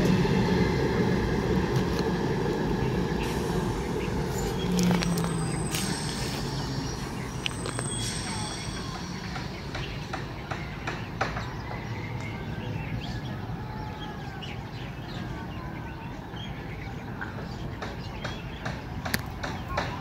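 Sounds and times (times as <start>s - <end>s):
steady low rumble: 0.0s - 10.8s.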